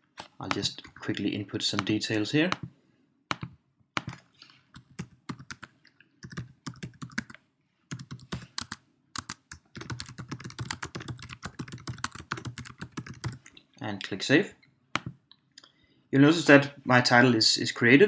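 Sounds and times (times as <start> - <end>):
typing on computer keyboard: 0.2 - 2.7, 3.3 - 13.6.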